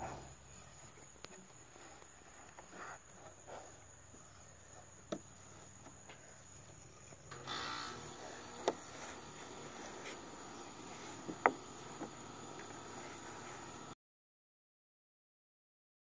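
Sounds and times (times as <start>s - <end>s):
pig snuffling: 0.0s - 4.9s, 8.1s - 13.8s
insects droning: 0.0s - 14.0s
rustling noise: 8.1s - 14.0s.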